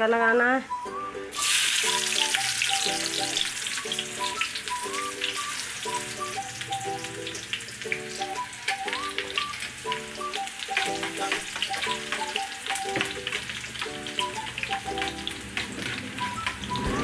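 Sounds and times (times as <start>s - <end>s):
onions sizzling in hot oil: 1.3s - 17.0s.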